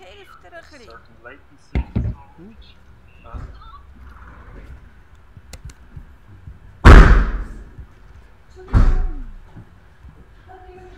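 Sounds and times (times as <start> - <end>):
loud thuds: 5.9 - 7.9.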